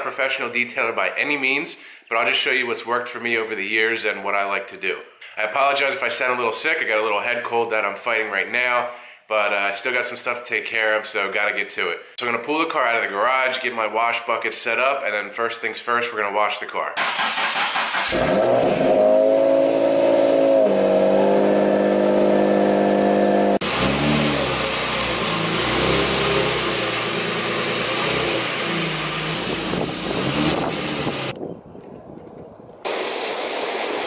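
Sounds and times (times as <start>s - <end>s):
car engine fast idle: 17.0s - 18.5s.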